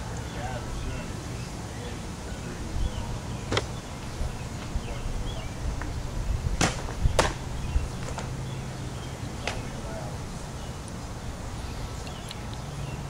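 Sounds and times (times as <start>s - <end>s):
ball smacking into mitt: 6.6s - 7.4s.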